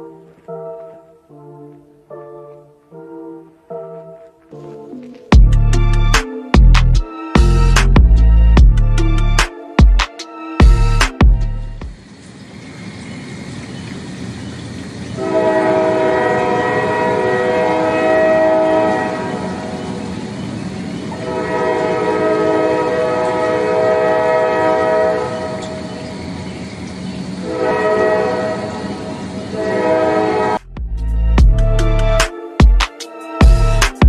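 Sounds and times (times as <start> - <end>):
train rumbling over bridge: 5.4 - 34.0
train horn blasts: 15.2 - 26.5, 27.3 - 32.2.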